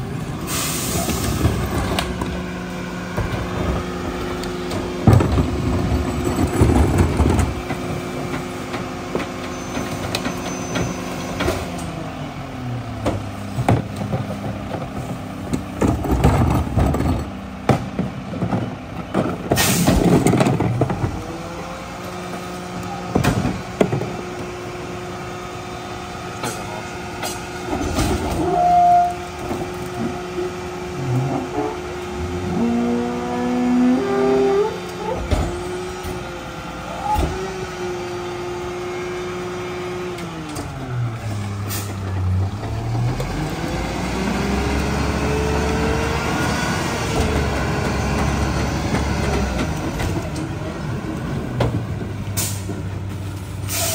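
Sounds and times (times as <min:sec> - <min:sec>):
carts banging and trash clattering: 0:00.0 - 0:11.9, 0:13.0 - 0:25.2, 0:26.2 - 0:32.7, 0:39.4 - 0:53.9
garbage truck engine revving: 0:00.1 - 0:53.9.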